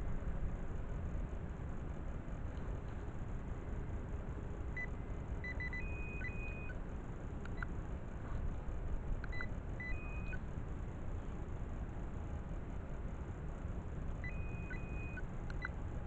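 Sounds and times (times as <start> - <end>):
pinpointer beeping in high chirps: 4.8 - 6.8, 9.3 - 10.4, 14.2 - 15.8.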